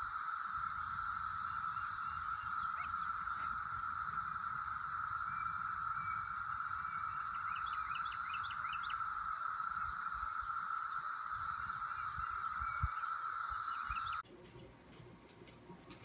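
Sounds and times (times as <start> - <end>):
insects droning: 0.0 - 16.0
bird chirping: 1.6 - 10.3, 11.9 - 14.7
wind rumble on microphone: 11.4 - 16.0.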